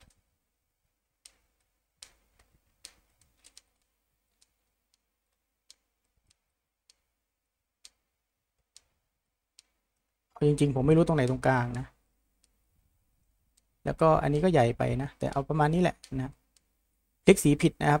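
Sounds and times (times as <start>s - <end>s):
computer mouse clicks: 0.0s - 0.3s, 1.2s - 7.2s, 7.8s - 12.6s, 14.3s - 16.7s.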